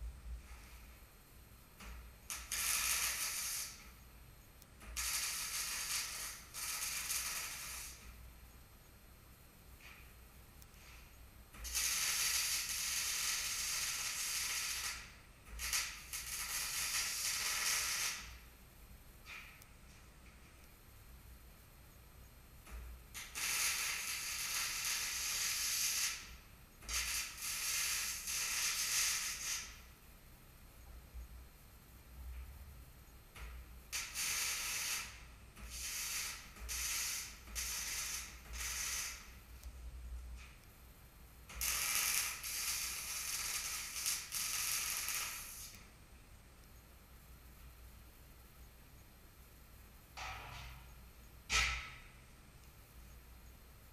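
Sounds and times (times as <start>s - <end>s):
low steady hum: 0.0s - 12.5s, 13.2s - 25.2s, 25.8s - 27.2s, 29.7s - 53.9s
welding arc crackling hiss: 1.8s - 4.0s, 4.8s - 8.2s, 9.8s - 18.5s, 22.6s - 30.0s, 33.4s - 40.6s, 41.4s - 45.9s.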